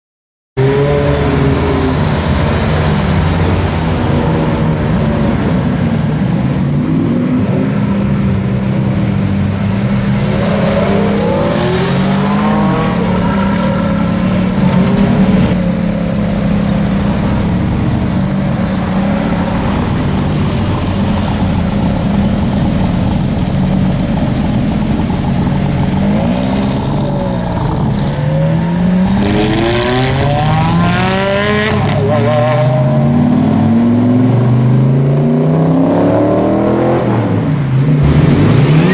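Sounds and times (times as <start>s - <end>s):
sports car engine revving: 9.8s - 38.9s.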